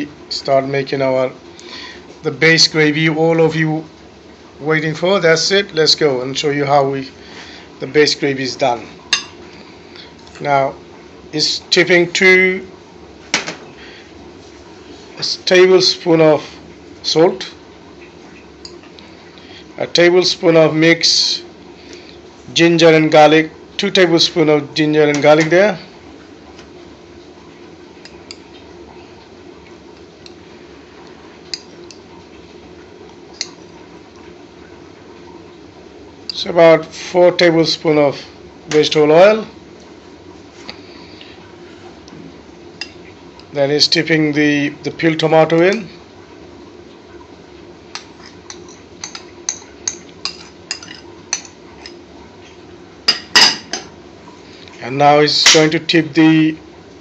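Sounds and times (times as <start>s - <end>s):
low background hum: 0.0s - 57.0s
spoon clinking against bowl and pan: 9.1s - 9.4s.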